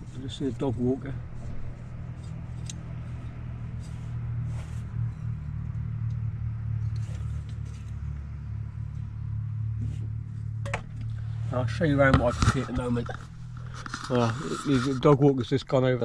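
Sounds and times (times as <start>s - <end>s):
vehicle engine idling: 0.0s - 15.8s.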